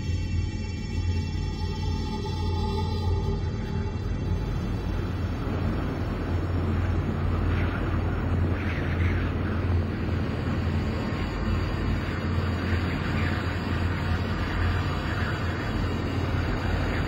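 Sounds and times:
deep rumble: 2.6s - 17.0s
wind-like rushing noise: 4.0s - 17.0s.

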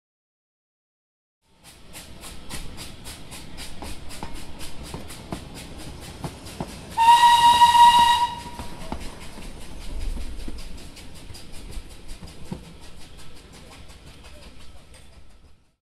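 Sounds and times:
steam locomotive exhaust beating: 1.5s - 15.8s
steam whistle blast: 6.9s - 8.8s.

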